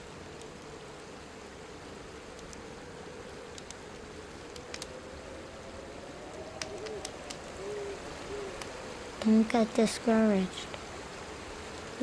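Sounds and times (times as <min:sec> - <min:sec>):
woodland ambience hiss: 0:00.0 - 0:12.0
low owl hoots: 0:01.5 - 0:09.2
soft clicks: 0:02.4 - 0:02.6, 0:03.5 - 0:04.9, 0:06.3 - 0:07.5.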